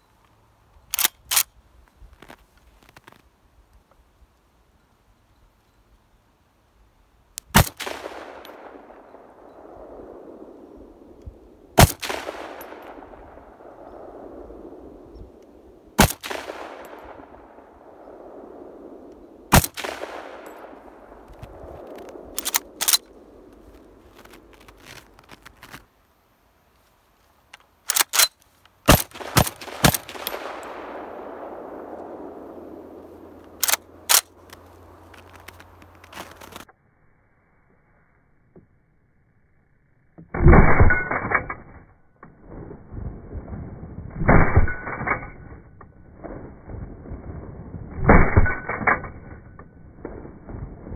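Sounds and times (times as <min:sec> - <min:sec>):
rifle shots with echo: 0:07.5 - 0:24.5, 0:28.9 - 0:34.4, 0:40.4 - 0:41.4, 0:44.1 - 0:50.9
metallic clicks: 0:19.1 - 0:25.8, 0:27.5 - 0:30.8, 0:33.4 - 0:36.7.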